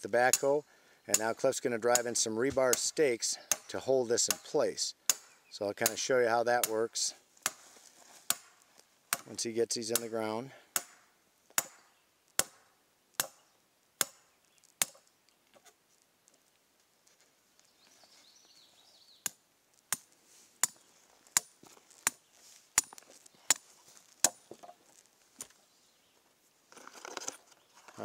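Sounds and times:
hammer striking steel stake: 0.3 - 1.3, 1.9 - 4.5, 5.1 - 6.0, 7.4 - 7.6, 8.2 - 9.3, 10.7 - 13.4, 14.0 - 15.1, 19.2 - 20.8, 21.4 - 22.2, 22.8 - 23.6, 24.2 - 24.5.

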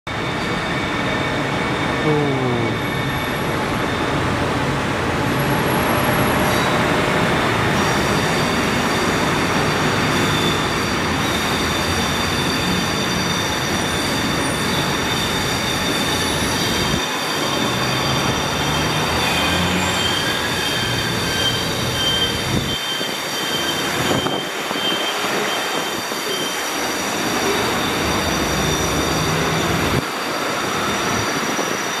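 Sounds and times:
train wheels rumbling on rail: 2.8 - 32.0
high-pitched wheel squeal: 7.7 - 32.0.

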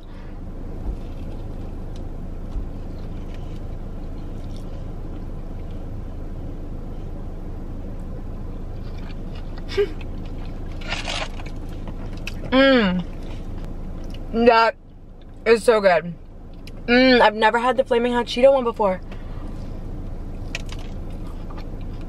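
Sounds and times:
car cabin rumble: 0.0 - 22.0
chewing crispy food: 0.9 - 5.9, 8.5 - 14.3, 19.4 - 22.0.

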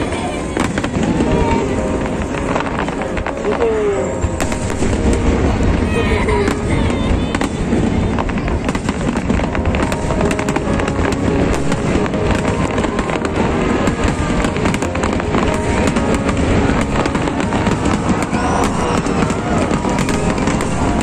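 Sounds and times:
fireworks crackling: 0.0 - 21.0
firework shells bursting: 8.2 - 21.0.

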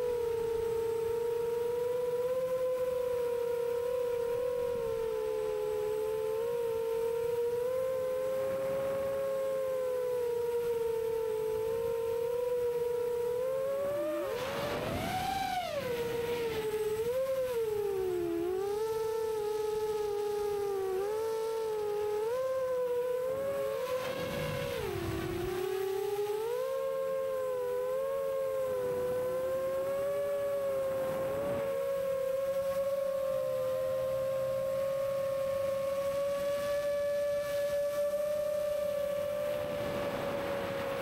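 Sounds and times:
drone motors whining: 0.0 - 41.0.

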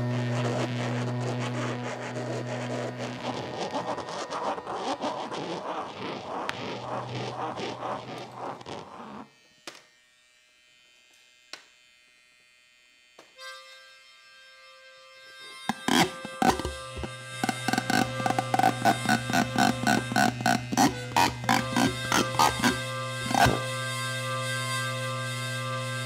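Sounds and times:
buzzing and scraping texture: 0.0 - 9.5, 15.5 - 26.0.

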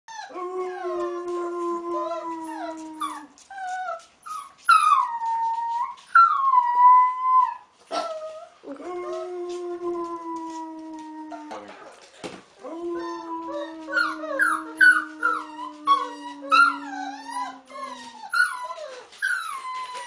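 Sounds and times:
wolf pup howling: 0.1 - 3.3, 12.6 - 20.0.

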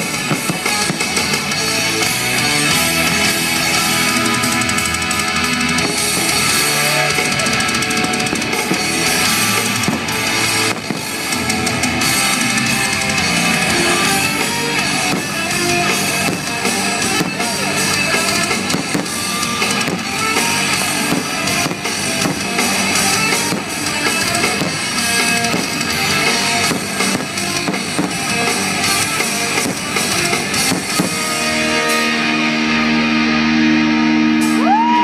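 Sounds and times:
drum kit: 0.0 - 35.0
electric guitar: 0.0 - 35.0.

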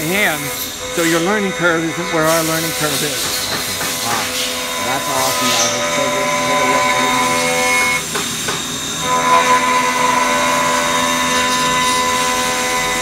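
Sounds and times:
coolant spraying hiss: 0.0 - 7.6
milling machine whine: 0.0 - 13.0.

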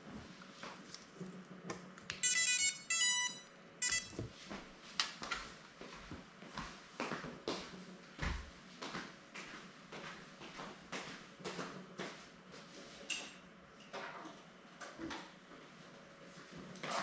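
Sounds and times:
drone startup beeps: 2.2 - 4.2.

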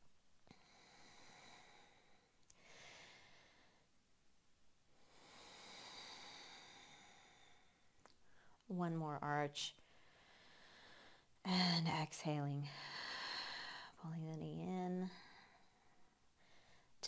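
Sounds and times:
woman breathing faintly: 0.4 - 4.0, 4.9 - 8.7, 9.7 - 14.1, 14.8 - 17.0.

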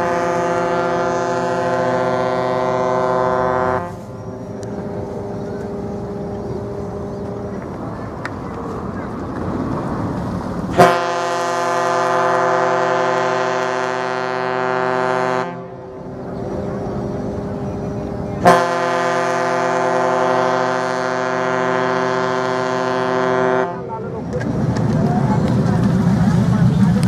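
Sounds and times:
ship's horn long blasts: 0.0 - 7.5, 10.7 - 23.9.

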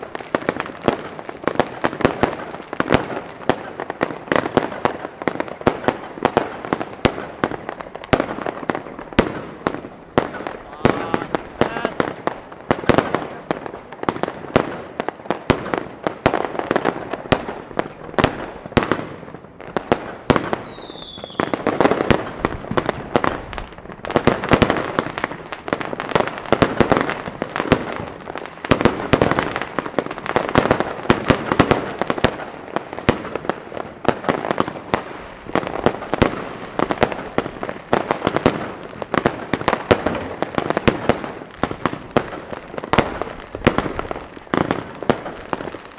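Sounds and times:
fireworks bangs and crackles: 0.0 - 45.9
firework falling whistle: 20.4 - 21.6.

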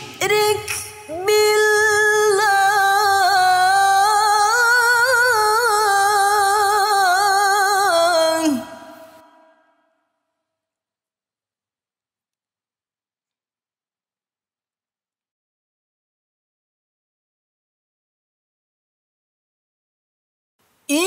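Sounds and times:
woman reciting melodically: 0.2 - 9.5.

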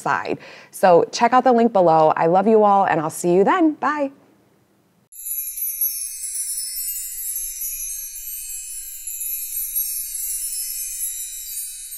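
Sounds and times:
high tinkling chimes music: 5.1 - 11.9.

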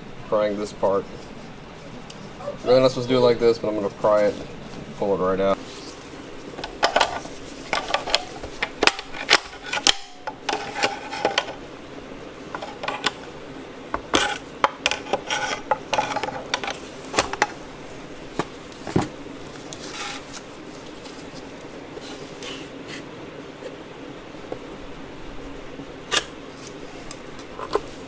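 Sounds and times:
metal-on-metal scraping: 9.0 - 11.6, 14.1 - 16.8, 19.8 - 20.3.

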